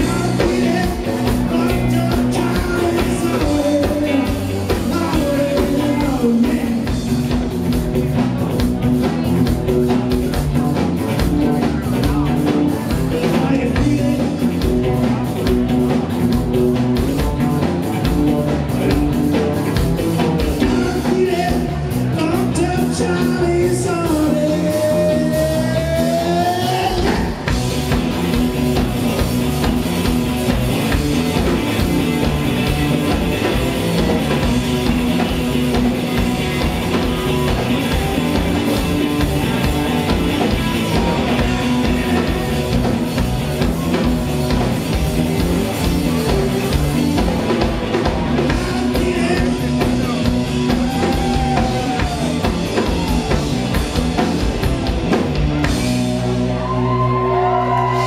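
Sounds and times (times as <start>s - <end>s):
drum kit: 0.0s - 58.0s
electric guitars: 0.0s - 58.0s
live rock band playing: 0.0s - 58.0s.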